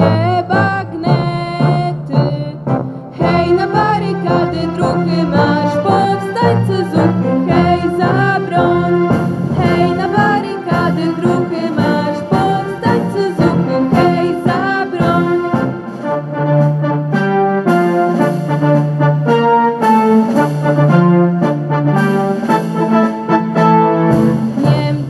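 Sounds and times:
girls and woman singing: 0:00.0 - 0:02.6, 0:03.2 - 0:15.7, 0:24.6 - 0:25.0
instrumental backing music: 0:00.0 - 0:25.0.

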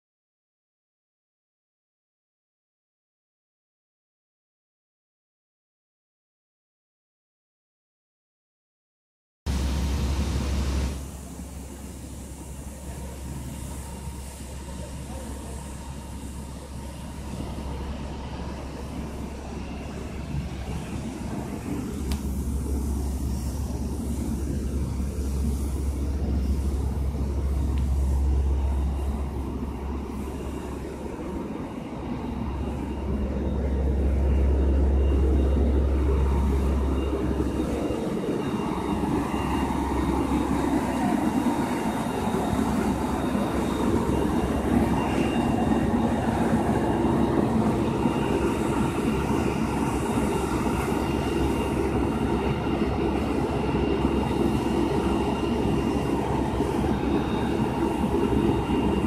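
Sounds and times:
fire engine diesel engine drone: 0:09.5 - 0:59.0
steady whining tones: 0:09.5 - 0:59.0
deep low rumble: 0:17.4 - 0:40.3.

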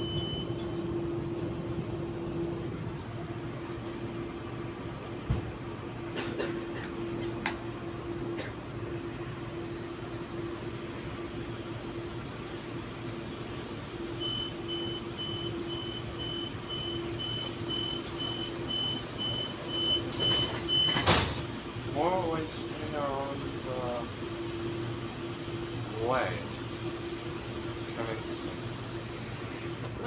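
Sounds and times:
high-pitched door warning beeps: 0:00.0 - 0:01.0, 0:14.2 - 0:21.4
electric train hum: 0:00.0 - 0:30.0.

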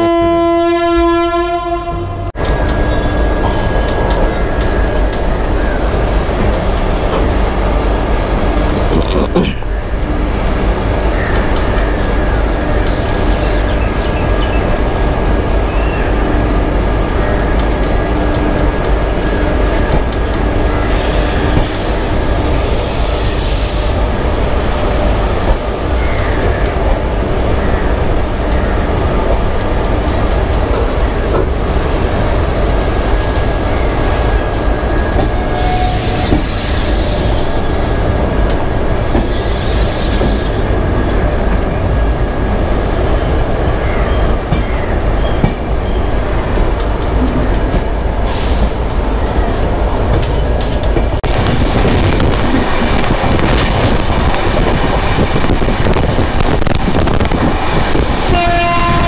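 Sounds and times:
train horn: 0:00.0 - 0:02.3, 0:58.3 - 0:59.0
train wheels rumbling on rails: 0:00.0 - 0:59.0.

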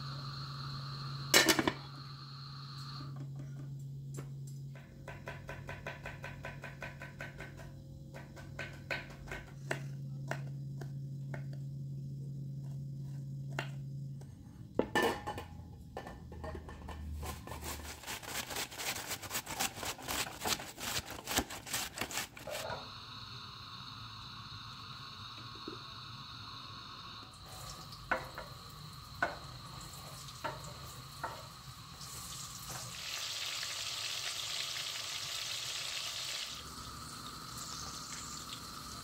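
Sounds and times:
utensils clinking on pots: 0:01.4 - 0:01.9
low steady hum: 0:07.8 - 0:33.0.

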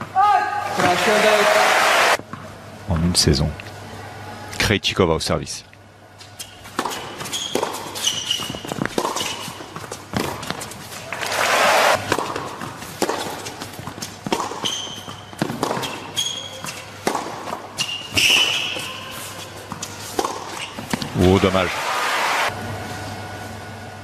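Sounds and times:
crowd noise: 0:00.6 - 0:02.2, 0:11.0 - 0:12.1, 0:21.2 - 0:22.7
sneakers squeaking on court: 0:06.3 - 0:10.9, 0:12.1 - 0:21.2
rackets striking tennis ball: 0:06.3 - 0:21.7.

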